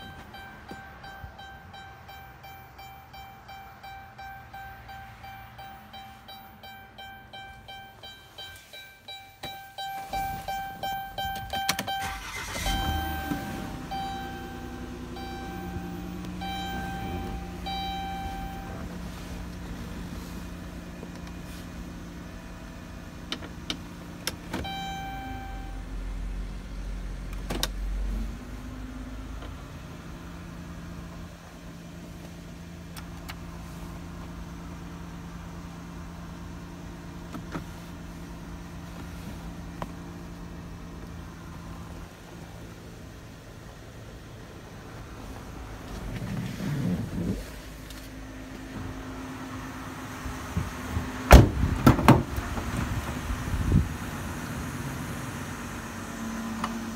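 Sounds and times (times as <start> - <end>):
car engine idling hum: 0.0 - 56.9.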